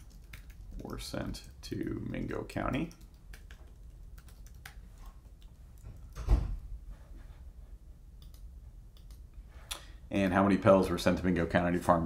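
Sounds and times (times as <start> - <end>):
computer keyboard typing: 0.0 - 6.2, 8.2 - 9.2.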